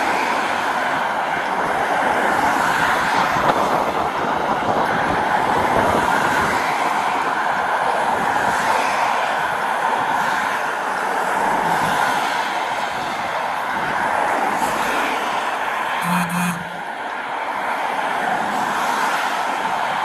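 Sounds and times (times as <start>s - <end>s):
road traffic passing: 0.0s - 20.0s.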